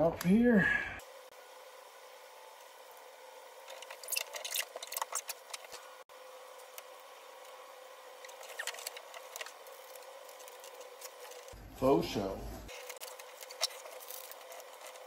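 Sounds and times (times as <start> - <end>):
paper and tape crinkling: 3.7 - 5.9, 8.2 - 11.6, 12.7 - 15.0.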